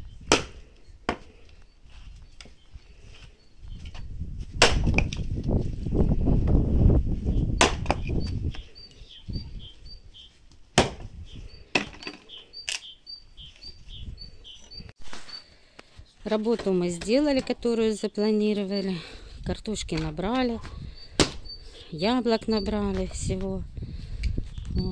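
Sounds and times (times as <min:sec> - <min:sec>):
axe splitting wood: 0:00.3 - 0:01.3, 0:04.6 - 0:05.2, 0:07.6 - 0:08.1, 0:10.8 - 0:11.1, 0:21.2 - 0:21.4
small bird chirping: 0:07.3 - 0:10.4, 0:11.2 - 0:15.5, 0:20.5 - 0:23.4.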